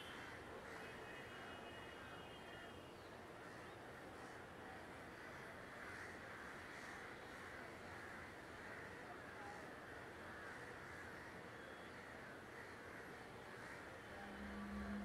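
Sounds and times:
distant city traffic hum: 0:03.1 - 0:15.0
crows cawing: 0:05.7 - 0:07.1, 0:10.2 - 0:15.0.

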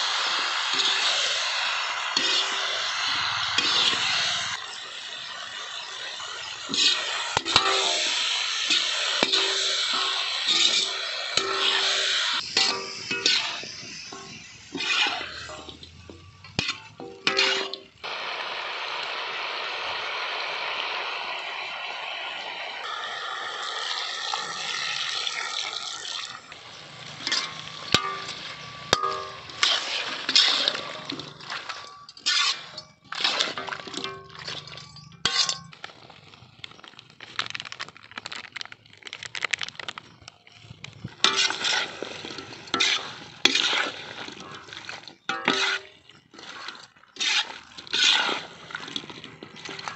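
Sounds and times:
food sizzling in a wok: 0:00.0 - 0:35.7, 0:41.1 - 0:49.9
metal spatula scraping a pan: 0:00.5 - 0:18.0, 0:26.7 - 0:35.9, 0:41.2 - 0:49.9.

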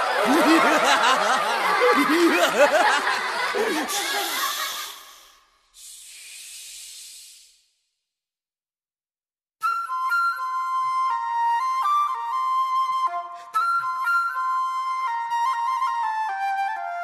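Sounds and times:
people laughing together: 0:00.0 - 0:05.2
steady hiss: 0:04.0 - 0:07.8.

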